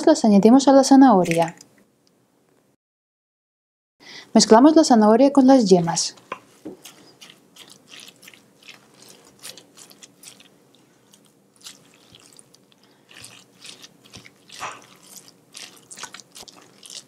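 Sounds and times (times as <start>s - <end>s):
spatula mashing food in metal bowl: 6.3s - 17.0s.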